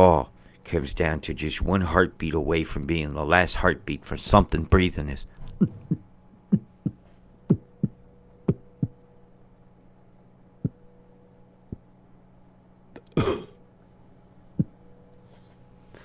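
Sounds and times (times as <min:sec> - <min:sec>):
faint steady hum: 0:00.0 - 0:16.0
low heartbeat-like thumps: 0:05.5 - 0:09.0
short cough-like burst: 0:13.0 - 0:13.6.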